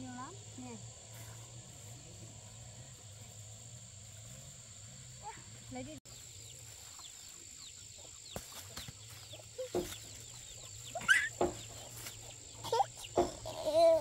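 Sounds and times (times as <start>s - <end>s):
chickens clucking: 6.4s - 14.0s.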